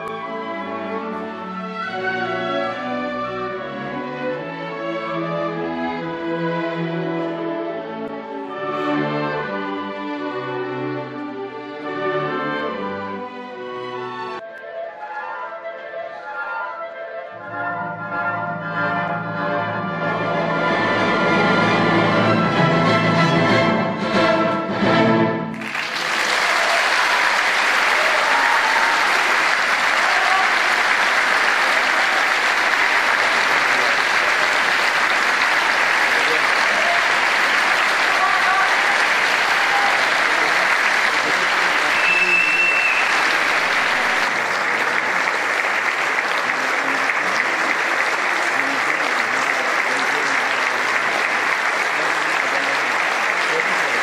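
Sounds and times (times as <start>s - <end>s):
orchestra playing chords: 0.0s - 15.5s, 17.3s - 26.6s, 28.8s - 54.0s
audience applause: 25.5s - 54.0s.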